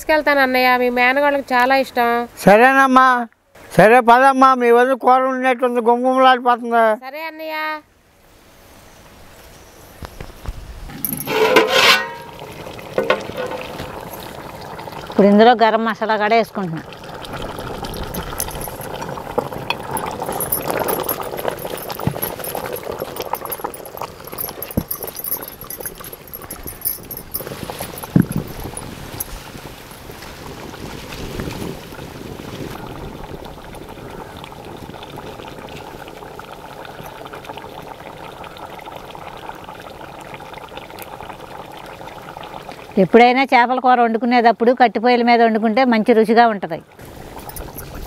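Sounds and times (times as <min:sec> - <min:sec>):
curry bubbling in metal pot: 0:10.9 - 0:43.2, 0:46.9 - 0:48.0.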